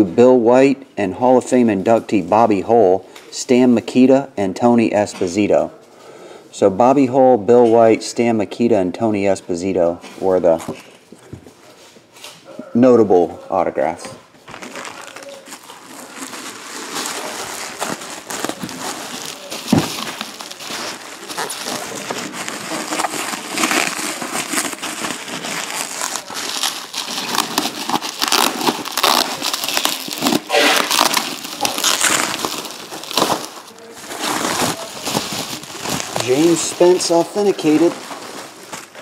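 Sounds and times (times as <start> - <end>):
bubble wrap crinkling: 14.2 - 39.0.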